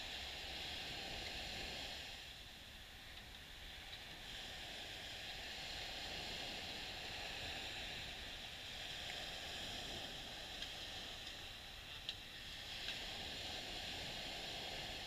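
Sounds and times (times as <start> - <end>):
small waves washing up a beach: 0.0 - 15.0.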